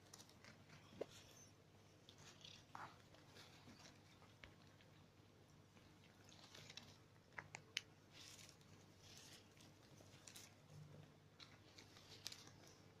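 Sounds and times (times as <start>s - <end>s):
plastic bag rustling: 8.1s - 13.0s.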